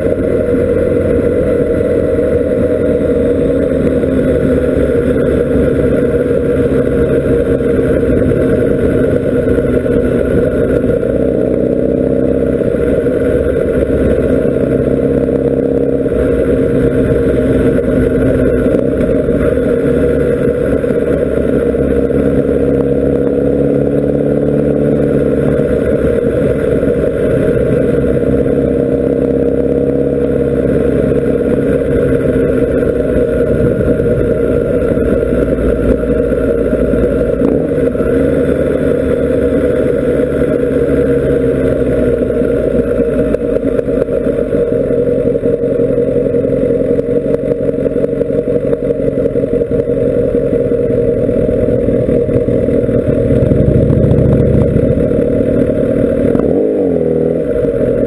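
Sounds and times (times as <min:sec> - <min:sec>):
motorcycle engine running: 0:00.0 - 0:58.0
wind rushing over microphone: 0:52.6 - 0:55.6.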